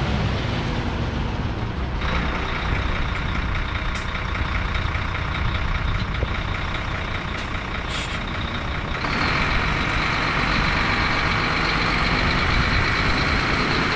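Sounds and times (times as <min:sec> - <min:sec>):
diesel truck engine: 0:00.0 - 0:13.9
air hiss: 0:07.9 - 0:08.2.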